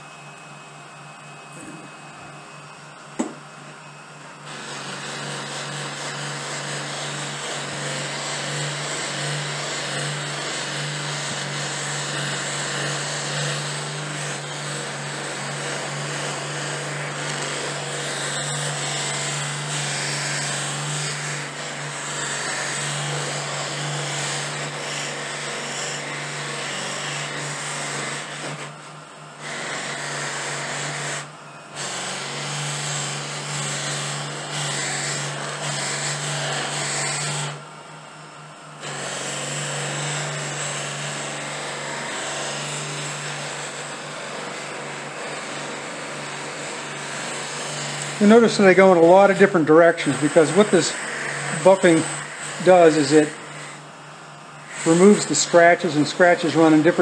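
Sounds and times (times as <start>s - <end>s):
buffing machine running: 0.0s - 57.0s.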